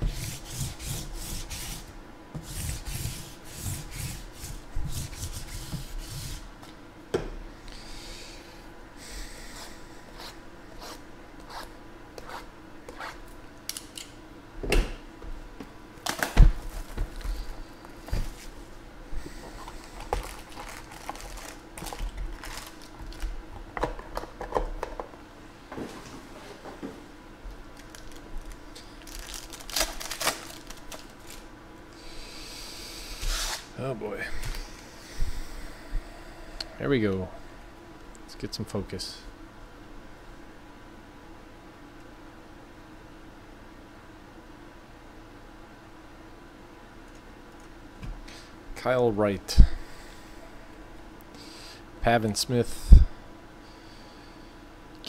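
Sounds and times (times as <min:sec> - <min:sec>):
cardboard and foil rustling: 0:19.8 - 0:23.3, 0:27.8 - 0:31.5.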